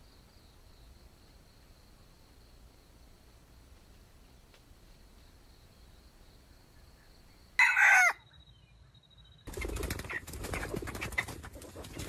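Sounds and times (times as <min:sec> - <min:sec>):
rooster crowing: 0:07.6 - 0:08.3.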